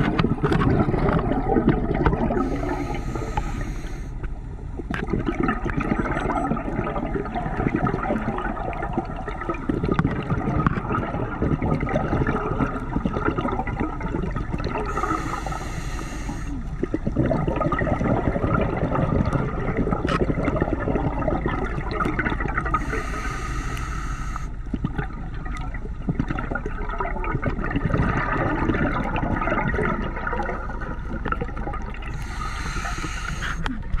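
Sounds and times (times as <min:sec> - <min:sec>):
crackling background: 0:00.0 - 0:34.0
gurgling exhaled bubbles: 0:00.0 - 0:34.0
hissing regulator inhale: 0:02.4 - 0:04.3, 0:14.9 - 0:16.7, 0:22.7 - 0:24.7, 0:32.1 - 0:33.8.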